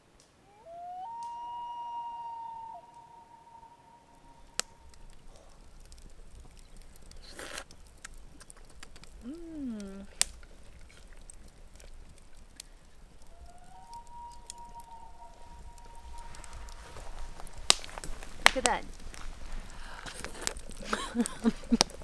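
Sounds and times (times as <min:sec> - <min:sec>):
campfire crackling: 0:00.0 - 0:22.0
loon wailing: 0:00.4 - 0:05.3, 0:13.2 - 0:18.8
sharp clicks: 0:04.4 - 0:22.0
person humming: 0:09.2 - 0:10.2.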